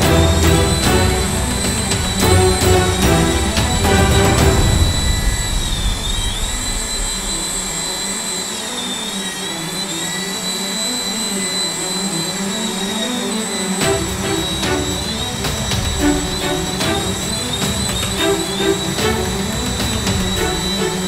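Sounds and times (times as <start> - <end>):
toy helicopter motor whining: 6.6 - 21.0.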